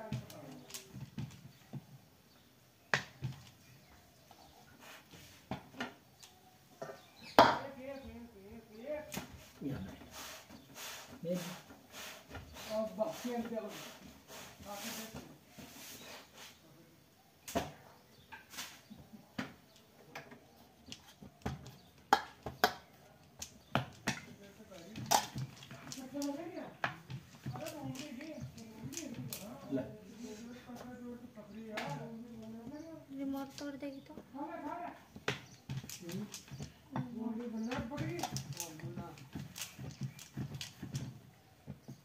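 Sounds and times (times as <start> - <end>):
cooking utensils knocking and clicking: 19.4 - 29.5.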